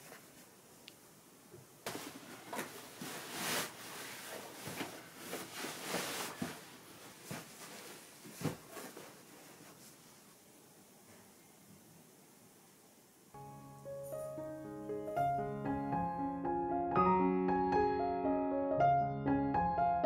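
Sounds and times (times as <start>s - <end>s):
bedding fabric rustling: 1.8s - 11.2s.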